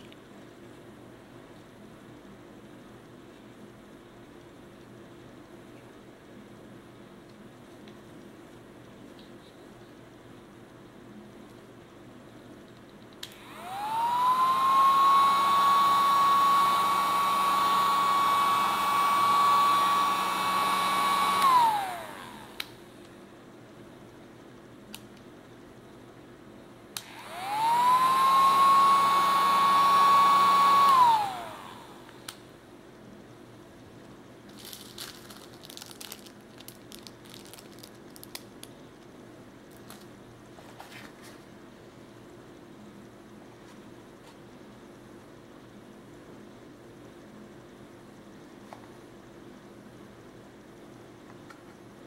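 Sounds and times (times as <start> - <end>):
small motor whining: 27.1 - 32.0
plastic bag crinkling: 34.5 - 38.8, 39.7 - 40.1.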